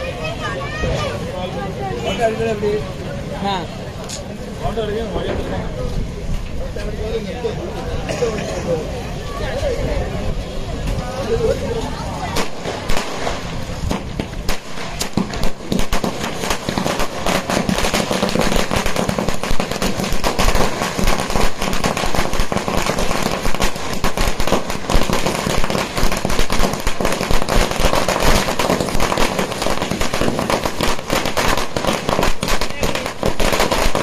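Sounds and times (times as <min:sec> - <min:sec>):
firecrackers banging: 0:10.3 - 0:34.0.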